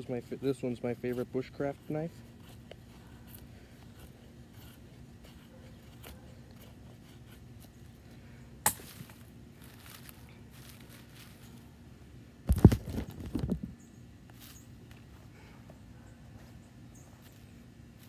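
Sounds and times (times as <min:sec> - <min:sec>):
knife shaving wood: 0:00.0 - 0:08.2.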